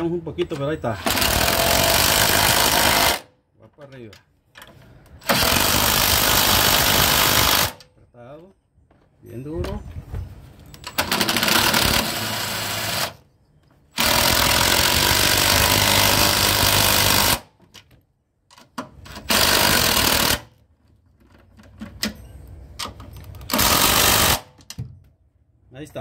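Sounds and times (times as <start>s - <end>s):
cordless impact wrench running: 1.0s - 3.3s, 5.2s - 7.8s, 11.0s - 13.2s, 14.0s - 17.4s, 19.2s - 20.4s, 23.5s - 24.6s.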